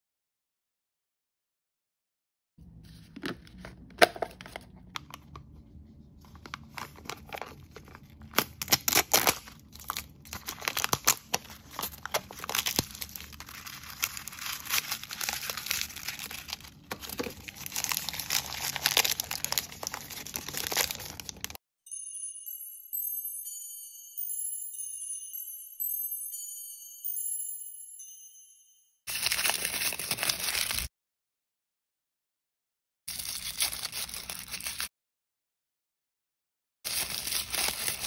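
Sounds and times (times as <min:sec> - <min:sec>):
plastic wrap crinkling and tearing: 0:06.3 - 0:21.6, 0:29.1 - 0:30.9, 0:33.1 - 0:34.9, 0:36.9 - 0:38.0
tinkling chime tune: 0:21.8 - 0:29.4.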